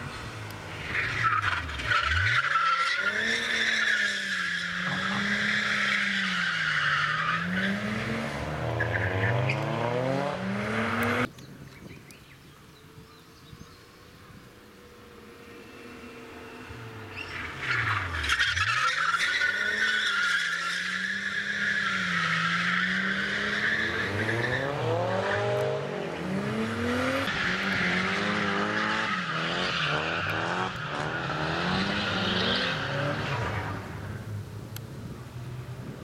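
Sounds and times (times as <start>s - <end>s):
car engines revving: 0.0s - 11.4s, 12.8s - 36.0s.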